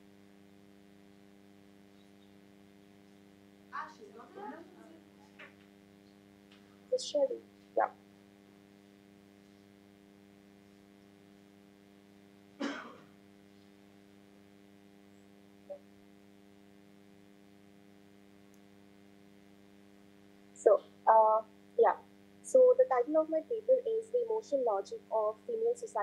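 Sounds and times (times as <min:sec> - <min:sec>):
faint electrical hum: 0:00.0 - 0:26.0
person coughing: 0:12.6 - 0:13.1.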